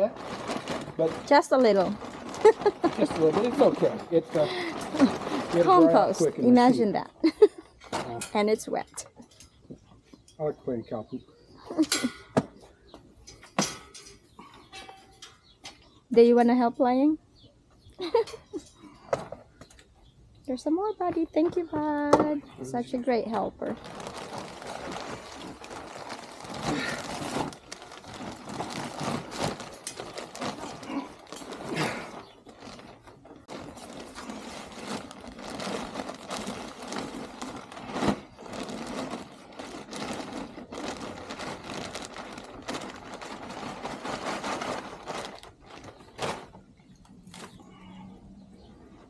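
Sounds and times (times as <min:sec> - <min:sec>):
soil rustling and scraping: 0:00.0 - 0:06.8, 0:23.4 - 0:48.0
plastic bags crinkling: 0:00.0 - 0:08.2, 0:22.8 - 0:47.6.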